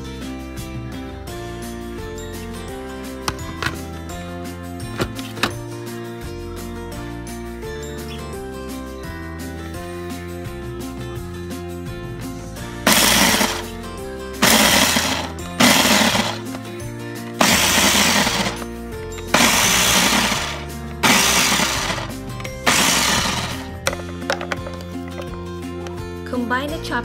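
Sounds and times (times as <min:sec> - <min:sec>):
background music: 0:00.0 - 0:27.0
food processor chopping: 0:12.9 - 0:13.7, 0:14.4 - 0:16.7, 0:17.3 - 0:23.8.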